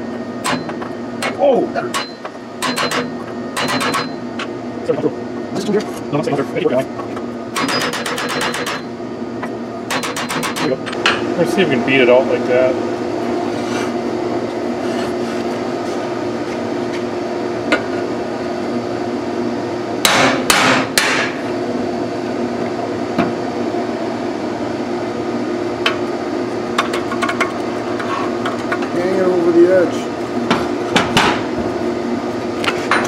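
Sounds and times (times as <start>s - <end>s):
steady background hum: 0.0s - 33.0s
hammer striking metal punch: 0.4s - 4.2s, 7.6s - 8.9s, 9.9s - 10.8s, 20.0s - 21.4s.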